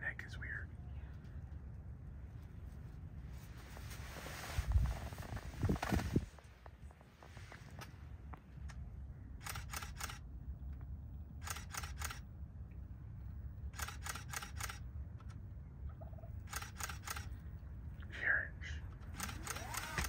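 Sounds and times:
low steady rumble: 0:00.0 - 0:20.0
camera shutter clicks: 0:09.4 - 0:10.2, 0:11.4 - 0:12.2, 0:13.8 - 0:14.8, 0:16.5 - 0:17.3, 0:19.0 - 0:20.0.

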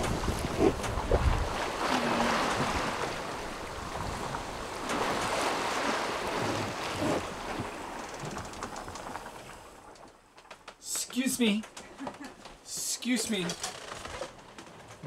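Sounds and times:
wind noise: 0:00.0 - 0:05.5
sea water rushing past boat: 0:00.0 - 0:09.9.

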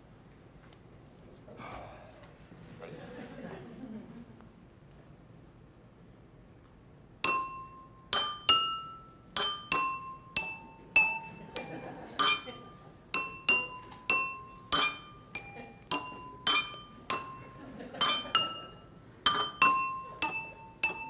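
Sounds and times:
glasses struck with spoons ringing: 0:07.2 - 0:21.0.

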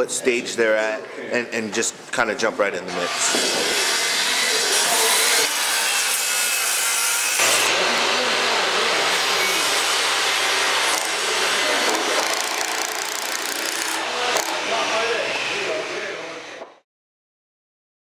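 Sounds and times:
circular saw cutting wood: 0:02.9 - 0:16.2.

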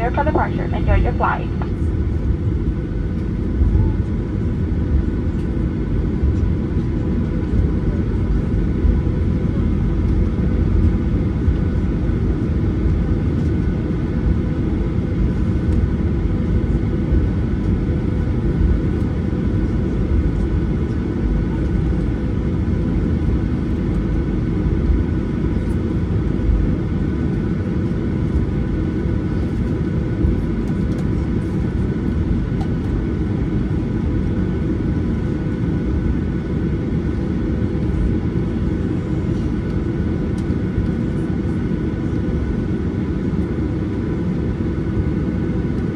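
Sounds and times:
steady whining tones: 0:00.0 - 0:02.0
airplane taxiing low rumble: 0:00.0 - 0:45.9.

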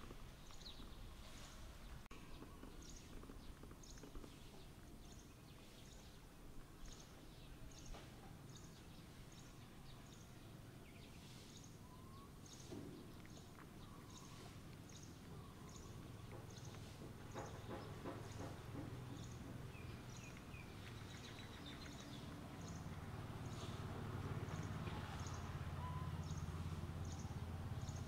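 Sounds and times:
faint whistles: 0:11.8 - 0:12.4.

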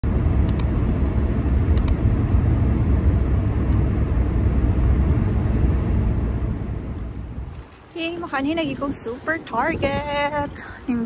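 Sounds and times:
tyre and engine rumble in car: 0:00.0 - 0:11.0
quick clicks: 0:01.8 - 0:02.0.

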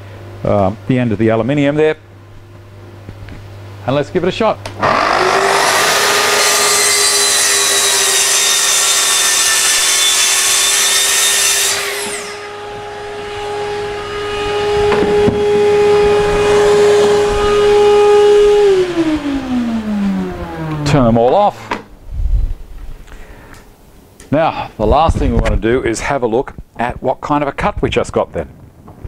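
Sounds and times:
shop vac running: 0:03.8 - 0:21.9
saw motor winding down: 0:04.8 - 0:21.1
track saw cutting sheet: 0:04.8 - 0:21.1.

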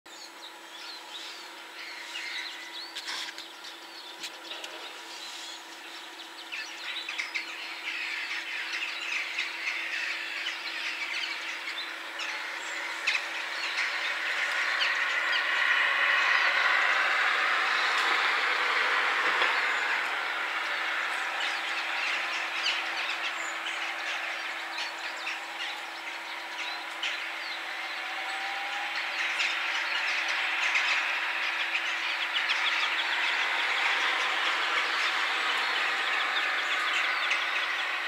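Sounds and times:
passing vehicles: 0:00.6 - 0:38.0.

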